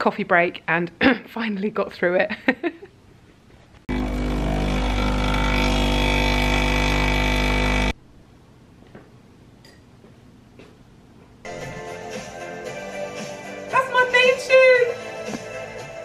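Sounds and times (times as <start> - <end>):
espresso machine pump buzzing: 3.9 - 8.0.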